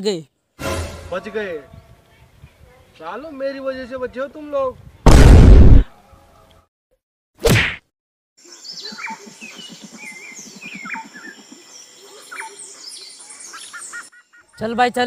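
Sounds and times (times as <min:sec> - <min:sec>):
loud hit: 0:05.1 - 0:05.9
birds chirping: 0:08.4 - 0:15.0
low pulsing bird call: 0:08.5 - 0:14.6.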